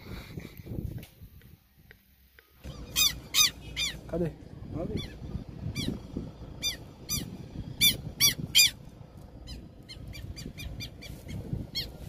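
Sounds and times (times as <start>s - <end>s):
bird harsh alarm calls: 2.6s - 4.1s, 4.9s - 8.8s, 9.4s - 12.0s.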